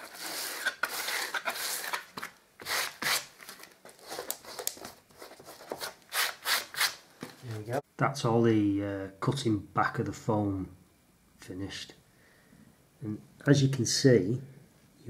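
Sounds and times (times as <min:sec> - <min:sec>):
blade scraping foam: 0:00.0 - 0:03.3.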